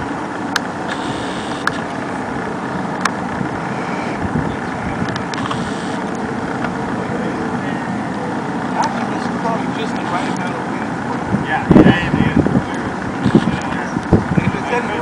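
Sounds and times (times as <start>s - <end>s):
wind rushing over microphone: 0.0s - 15.0s
sharp clicks: 0.5s - 2.0s, 5.0s - 6.8s.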